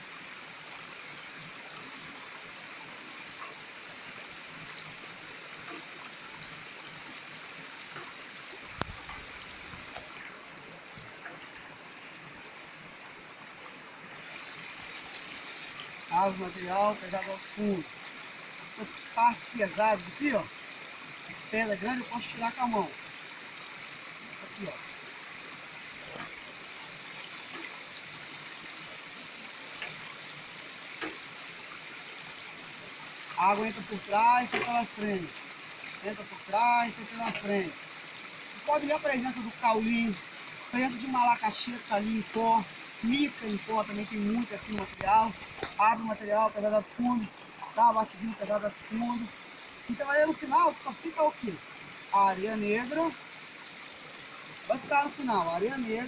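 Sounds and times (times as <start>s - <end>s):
stream running over rock: 0.0s - 56.0s
faint ticks: 7.8s - 10.4s, 29.7s - 30.3s, 30.9s - 31.3s, 44.7s - 45.8s.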